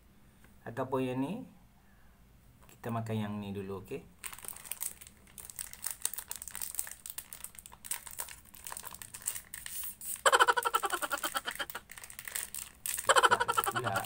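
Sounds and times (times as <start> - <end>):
plastic wrapper crinkling: 4.2 - 14.0.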